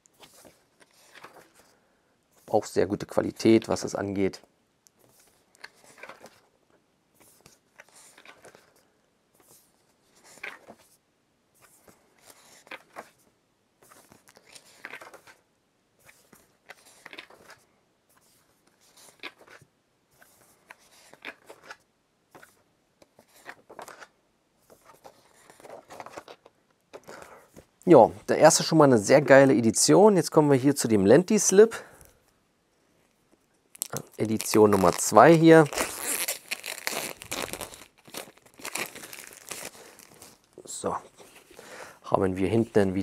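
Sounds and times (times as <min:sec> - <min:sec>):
paper and cardboard rustling: 0:00.1 - 0:01.8, 0:20.2 - 0:27.7, 0:33.9 - 0:41.6.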